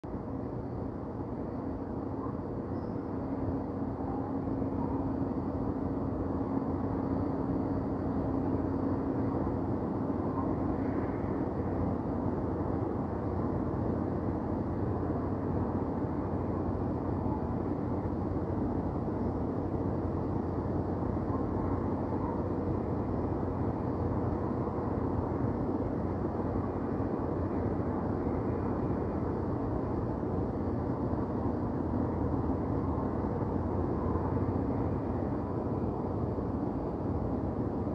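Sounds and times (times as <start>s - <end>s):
constant hum: 0.0s - 37.9s
low city rumble: 0.0s - 37.9s.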